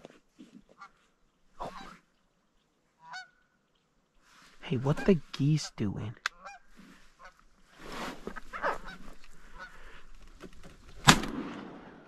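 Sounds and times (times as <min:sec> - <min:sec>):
geese honking: 0:01.6 - 0:02.0, 0:03.0 - 0:03.5, 0:04.8 - 0:07.6, 0:08.4 - 0:10.1
shotgun shot: 0:11.0 - 0:12.0.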